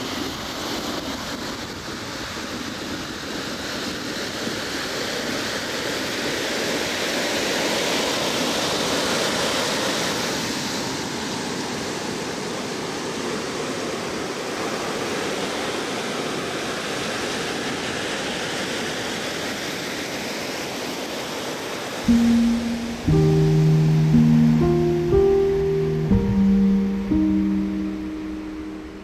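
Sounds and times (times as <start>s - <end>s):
ocean surf on sand beach: 22.1s - 29.0s.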